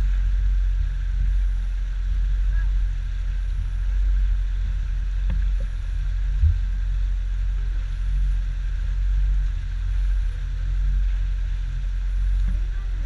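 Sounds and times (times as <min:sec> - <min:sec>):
outboard motor rumble: 0:00.0 - 0:13.0
wind on microphone: 0:00.0 - 0:13.0
short thump: 0:06.4 - 0:06.7.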